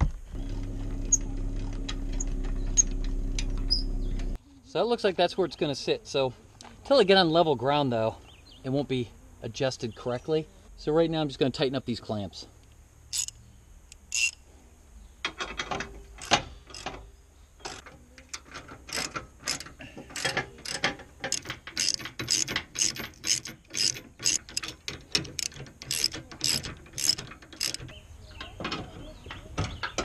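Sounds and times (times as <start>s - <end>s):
ratchet wrench clicking: 13.1s - 14.4s, 16.2s - 17.0s, 17.7s - 27.9s.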